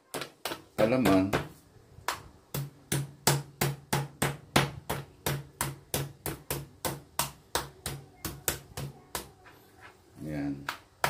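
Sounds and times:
mallet pounding meat: 0:02.5 - 0:08.9.

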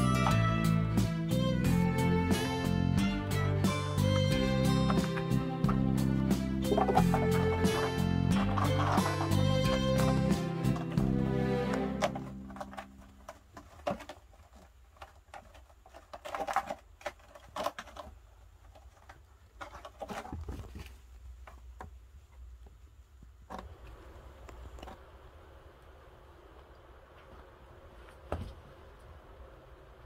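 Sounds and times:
kitten claws scratching rope: 0:12.0 - 0:20.8.

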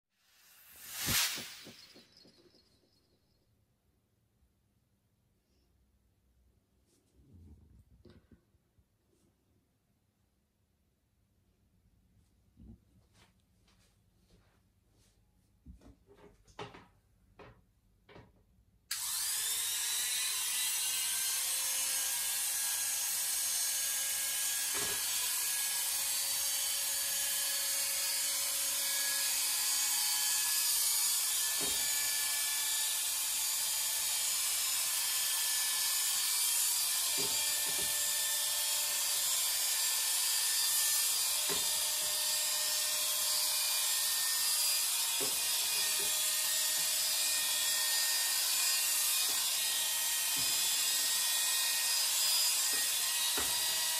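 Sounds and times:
electric hair clippers buzzing: 0:00.3 - 0:01.9, 0:18.9 - 0:53.9.

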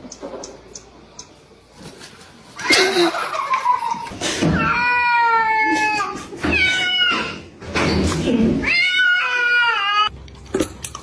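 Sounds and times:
cat yowling: 0:08.6 - 0:10.1.

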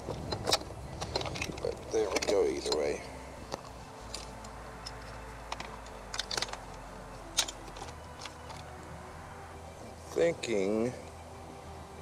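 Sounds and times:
plastic connectors clicking: 0:03.5 - 0:08.7.

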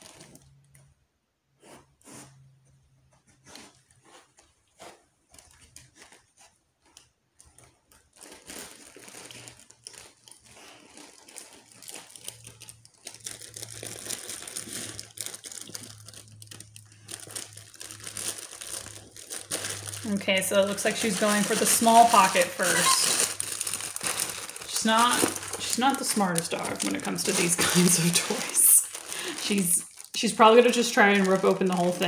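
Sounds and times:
paper crinkling and rustling: 0:00.0 - 0:00.9, 0:03.1 - 0:32.0.

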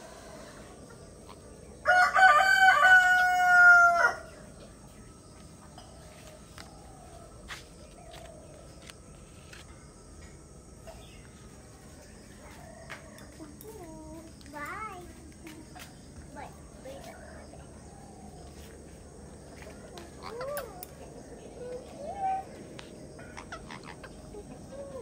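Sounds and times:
rooster crowing: 0:01.8 - 0:04.4.

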